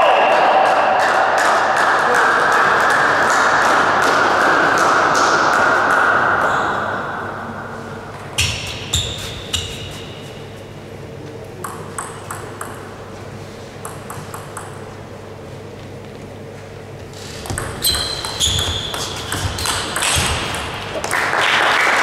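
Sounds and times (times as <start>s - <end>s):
crowd noise: 0.0s - 8.3s
table tennis ball bouncing: 11.6s - 13.1s, 13.8s - 15.0s, 17.4s - 21.1s.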